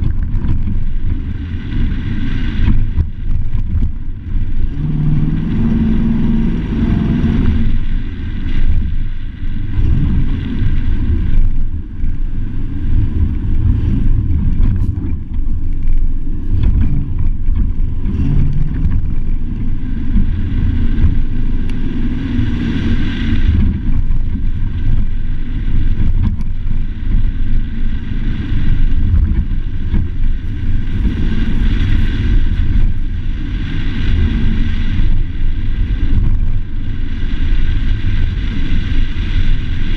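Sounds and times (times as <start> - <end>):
heavy low rumble: 0.0 - 39.9
truck driving on dirt track: 0.0 - 39.9.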